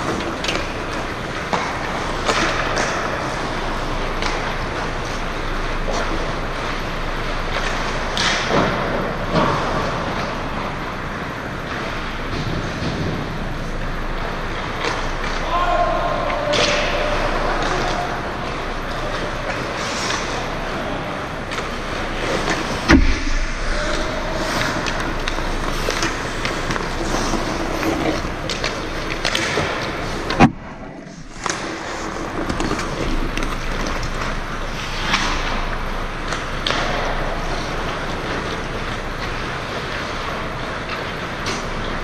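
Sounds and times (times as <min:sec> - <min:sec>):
sticks and puck clacking: 0:00.0 - 0:06.8, 0:11.7 - 0:42.0
skate blades scraping ice: 0:16.6 - 0:23.0, 0:23.7 - 0:30.3, 0:31.0 - 0:42.0
rink hum: 0:17.3 - 0:39.7
sharp knocks: 0:22.8 - 0:24.2.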